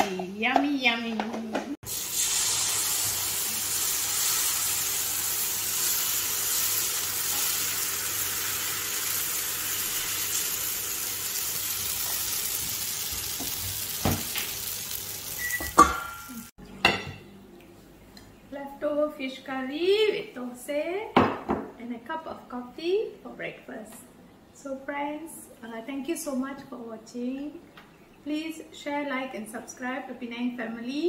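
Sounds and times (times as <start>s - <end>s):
batter sizzling on a hot griddle: 1.8s - 15.7s.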